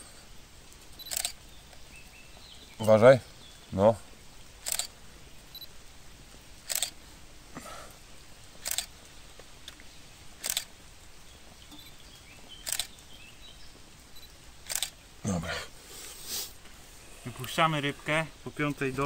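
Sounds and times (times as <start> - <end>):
faint outdoor background: 0.0 - 19.0
camera shutter clicking: 1.0 - 1.4, 4.6 - 4.9, 6.7 - 7.0, 8.6 - 8.9, 10.4 - 10.7, 12.6 - 12.9, 14.7 - 15.0.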